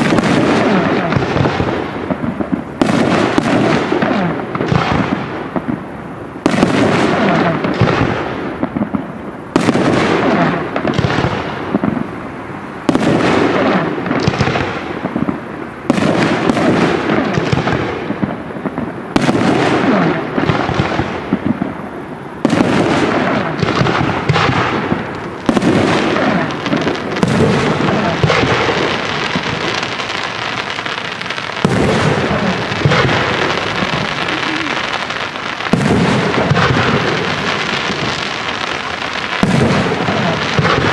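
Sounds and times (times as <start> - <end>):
firework shells bursting: 22.4 - 40.9
echoing rumble: 22.6 - 40.9.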